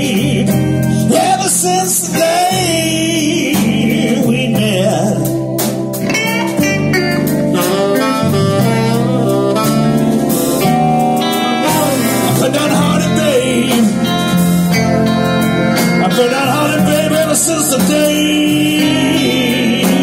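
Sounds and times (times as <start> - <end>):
man singing: 0.0 - 6.6, 11.3 - 15.0, 15.6 - 20.0
drums: 0.0 - 20.0
electric guitar: 0.0 - 20.0
keyboard: 0.0 - 20.0
saxophone: 2.0 - 20.0.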